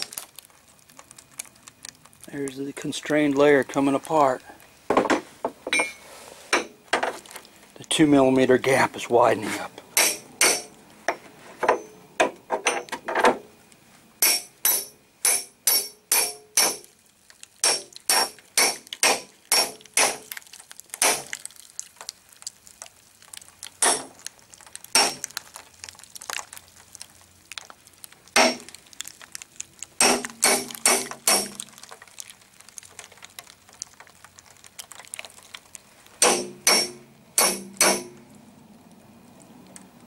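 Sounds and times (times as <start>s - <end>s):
hammer striking chisel on metal: 10.0s - 10.7s, 14.2s - 16.8s, 17.6s - 20.2s, 30.0s - 31.5s, 36.2s - 38.2s.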